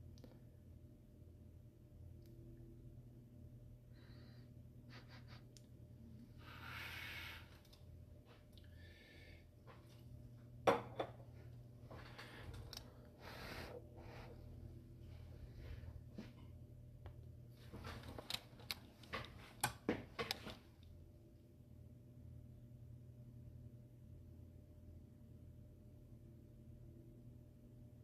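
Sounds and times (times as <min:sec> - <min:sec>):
low steady hum: 0:00.0 - 0:28.0
breath-like hisses: 0:06.4 - 0:07.6.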